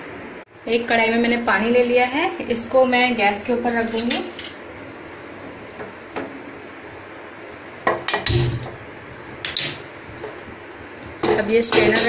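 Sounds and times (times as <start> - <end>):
metal pot clanking: 11.2 - 12.0.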